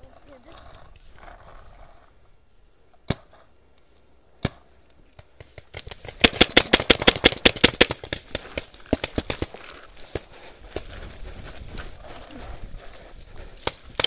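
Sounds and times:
paintball marker firing: 3.1 - 3.4, 4.4 - 9.5.

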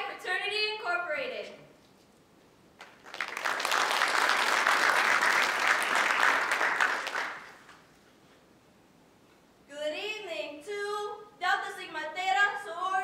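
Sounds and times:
audience applause: 2.8 - 7.7.

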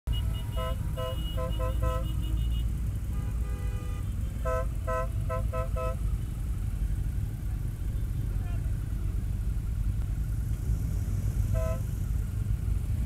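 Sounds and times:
vehicle horns tooting: 0.1 - 6.2, 11.4 - 12.0
motorcycle engine rumble: 0.1 - 13.0.

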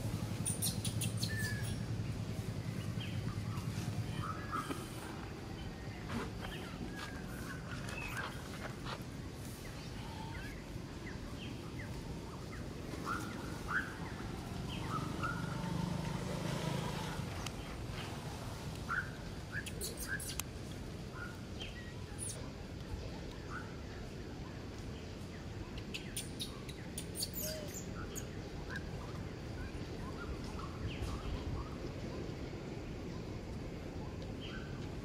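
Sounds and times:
low background rumble: 0.0 - 15.9.

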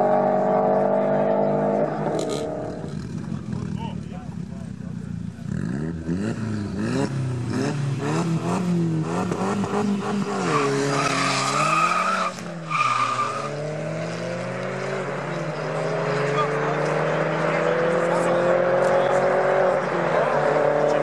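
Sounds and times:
car engines revving: 0.0 - 21.0
tyre squeal: 10.3 - 13.7.

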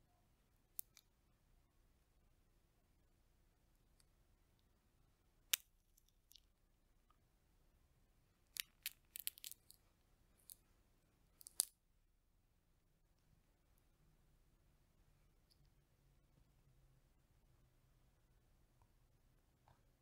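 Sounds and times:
chestnut shells cracking: 8.5 - 9.8, 11.4 - 11.7.

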